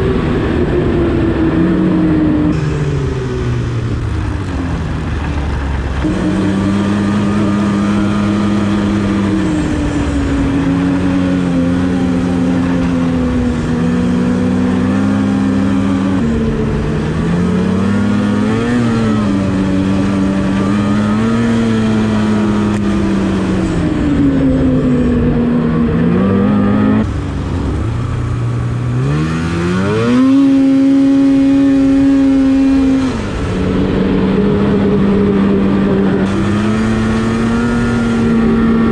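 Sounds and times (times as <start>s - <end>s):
snowmobile engine revving: 0.0s - 38.9s.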